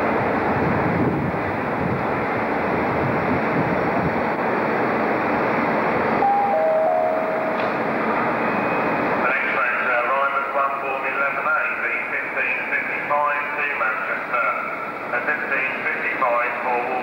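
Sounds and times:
rushing station noise: 0.0s - 17.0s
two held tones: 6.2s - 7.8s.

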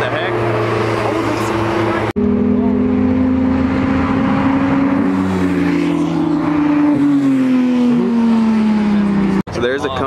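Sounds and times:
car engine approaching: 0.0s - 9.5s.

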